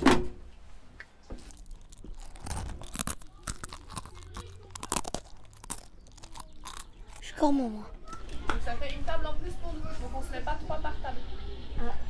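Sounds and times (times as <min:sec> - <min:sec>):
crunching and clicking: 0:01.0 - 0:08.4.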